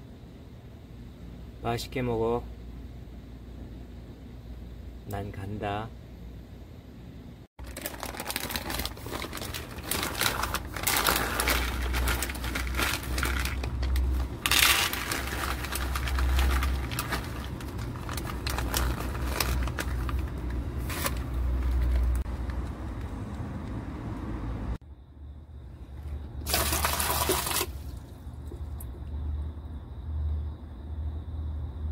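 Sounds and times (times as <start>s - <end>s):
dry kibble pouring into bowls: 7.6s - 20.2s, 26.5s - 28.0s
bag crinkling: 7.6s - 22.2s, 26.5s - 28.1s.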